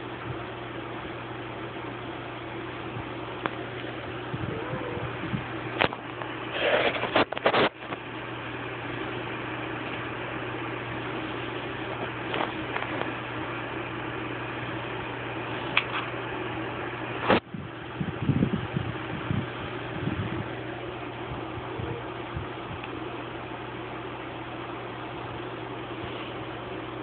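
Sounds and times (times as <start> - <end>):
low hum and hiss: 0.0 - 27.0.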